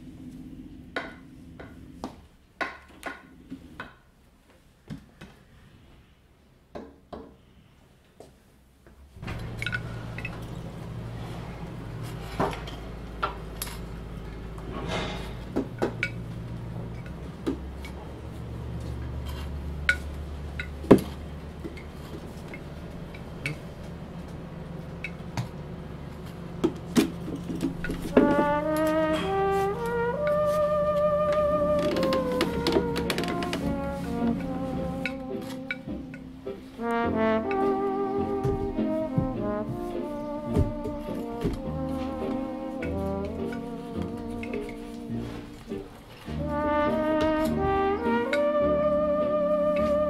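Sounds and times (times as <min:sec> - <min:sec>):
steady low hum: 0:09.1 - 0:50.0
walking cane tapping: 0:15.5 - 0:36.8, 0:37.5 - 0:48.5
footsteps on a hard floor: 0:26.6 - 0:47.8.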